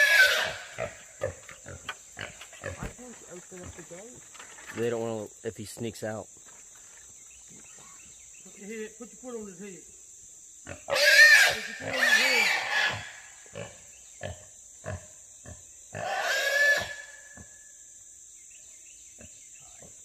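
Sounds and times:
hog squealing loudly: 0.0s - 0.8s, 10.9s - 13.2s, 16.0s - 17.2s.

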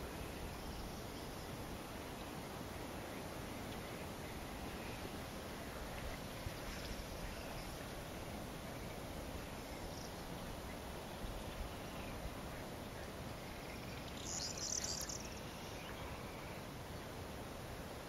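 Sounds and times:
steady background hiss: 0.0s - 18.0s
bird singing short high song: 13.5s - 16.6s.

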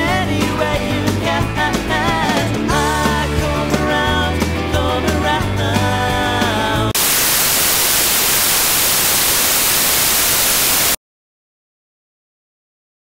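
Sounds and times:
rock music: 0.0s - 7.3s
white noise static hiss: 7.0s - 11.0s.

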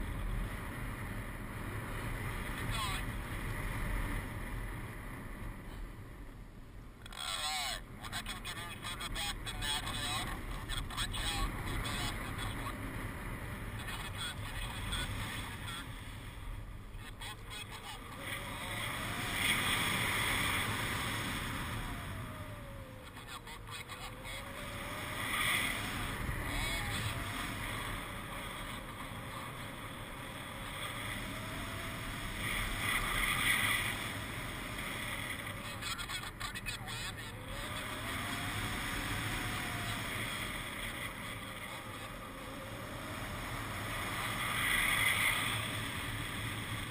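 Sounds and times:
faint gliding tone: 7.7s - 46.9s
wind rushing over microphone: 8.2s - 36.4s.

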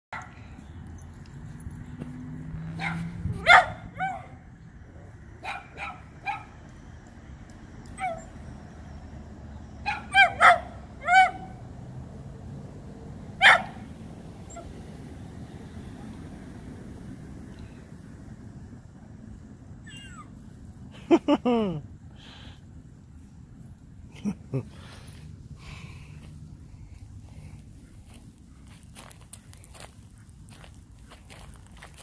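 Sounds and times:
dog barking sharply: 2.8s - 4.4s.

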